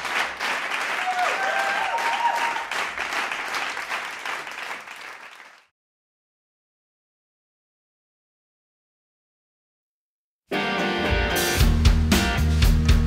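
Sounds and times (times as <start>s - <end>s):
crowd applauding: 0.0s - 5.7s
crowd cheering: 0.0s - 5.7s.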